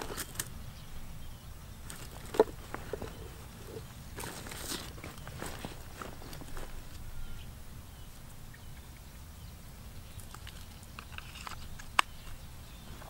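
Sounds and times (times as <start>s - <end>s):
low steady rumble: 0.0s - 10.4s
faint rustling: 1.8s - 7.6s.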